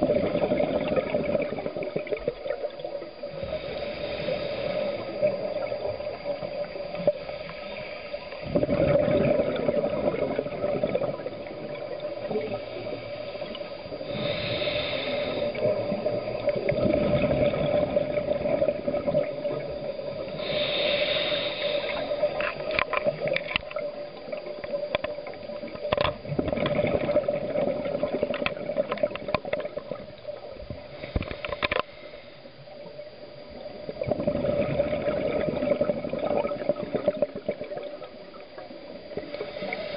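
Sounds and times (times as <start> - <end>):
exhaled bubbles gurgling: 0.0 - 39.9
steady hum: 0.0 - 39.9
diver breathing through regulator: 3.3 - 5.6, 12.3 - 18.8, 20.2 - 22.9, 30.8 - 32.7, 39.1 - 39.9.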